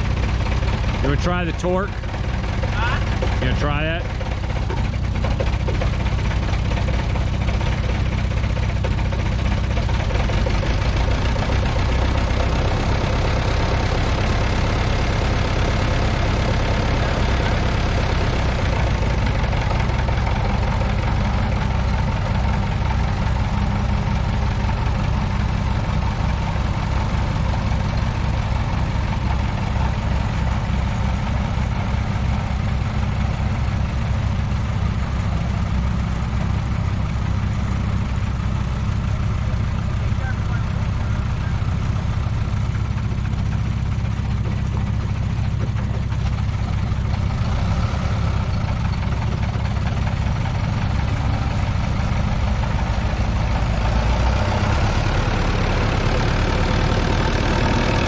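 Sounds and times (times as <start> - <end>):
diesel tractor engine running: 0.0 - 58.0.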